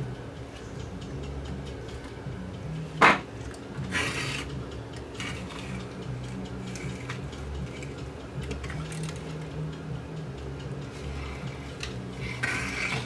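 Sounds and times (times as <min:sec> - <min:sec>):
objects knocking on bench: 0:03.0 - 0:03.3
sharp clack on workbench: 0:03.0 - 0:03.3.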